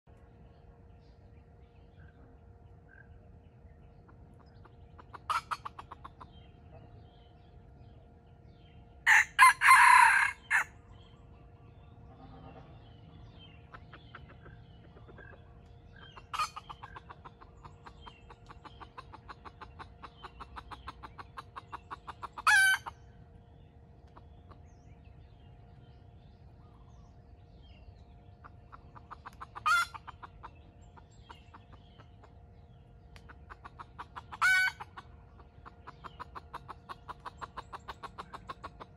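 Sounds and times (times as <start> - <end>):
quick clucks: 4.0 - 6.8, 13.6 - 23.0, 28.4 - 32.4, 33.1 - 38.9
roosters crowing: 9.0 - 10.8, 22.2 - 23.0, 29.6 - 30.0, 34.3 - 34.9.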